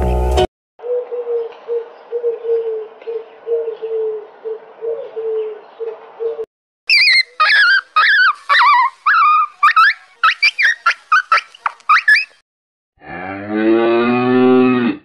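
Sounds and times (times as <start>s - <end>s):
wood pigeon cooing: 0.8s - 12.3s
dog whining: 6.9s - 12.3s.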